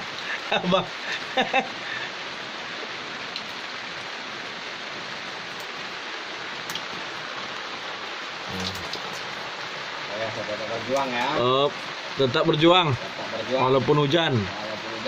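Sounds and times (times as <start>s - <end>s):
rain on wooden boat and river: 0.0s - 15.0s
raindrop ticks: 3.3s - 3.6s, 5.4s - 5.8s, 6.6s - 7.6s, 8.4s - 15.0s.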